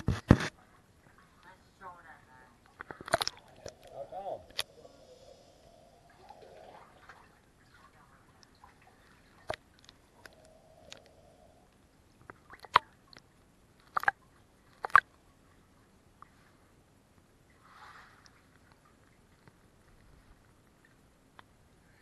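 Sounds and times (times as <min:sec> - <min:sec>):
water lapping against pontoons: 0:00.6 - 0:11.2.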